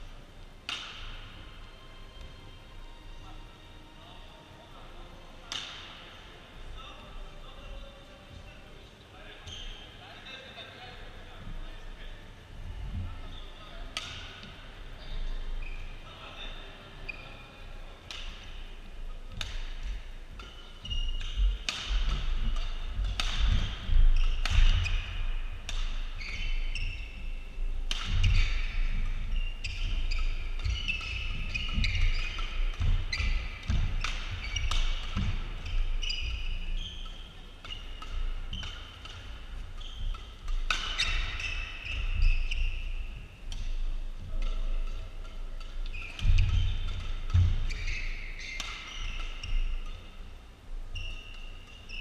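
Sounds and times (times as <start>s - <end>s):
rackets striking shuttlecock: 0.6s - 1.4s, 5.5s - 6.2s, 13.9s - 14.6s, 18.0s - 18.7s, 19.3s - 27.2s, 27.8s - 42.8s, 43.5s - 50.1s
shoes squeaking on court: 9.4s - 10.0s, 13.3s - 16.0s, 19.3s - 50.2s, 50.9s - 52.0s.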